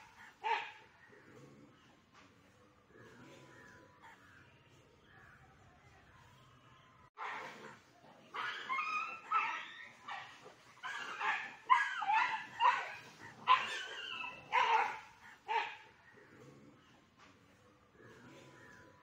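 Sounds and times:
dogs yelping whining and barking: 8.3 - 16.0.

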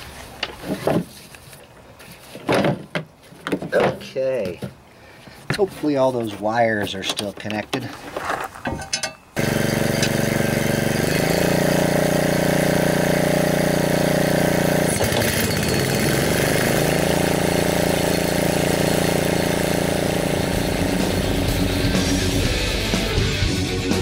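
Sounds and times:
blades cutting grass: 9.4 - 23.2
mower engine running: 9.4 - 24.0.

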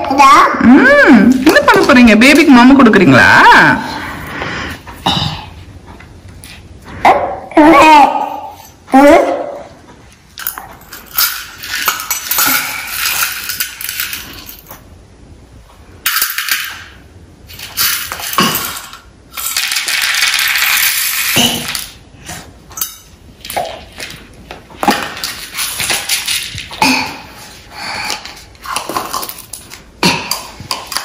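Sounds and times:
toy dishes and bowls clattering: 10.4 - 14.8, 17.5 - 22.0.

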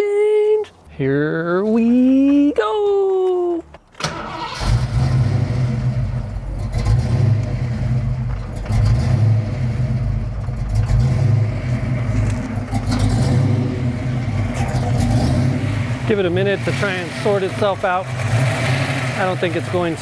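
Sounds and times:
car engine cranking: 3.6 - 20.0
car engine unsettled idle: 4.3 - 20.0.

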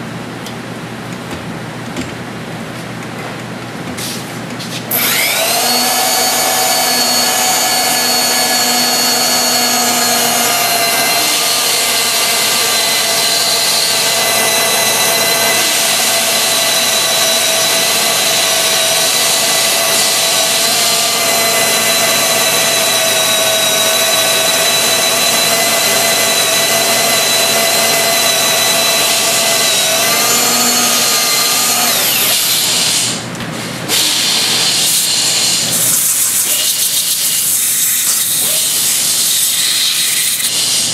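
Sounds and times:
power drill whining: 4.9 - 33.2.

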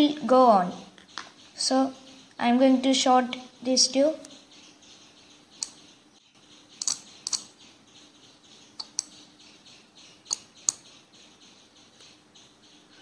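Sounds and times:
relay clicking: 6.8 - 7.5.

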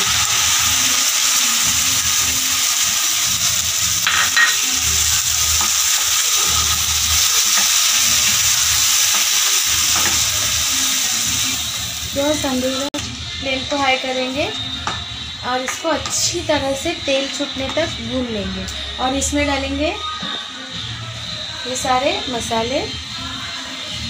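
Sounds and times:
sauce sizzling in hot oil: 0.0 - 18.1.

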